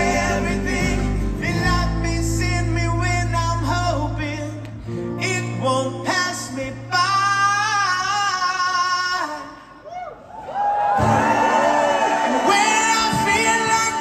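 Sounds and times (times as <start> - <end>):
man singing: 0.0 - 9.7, 12.4 - 14.0.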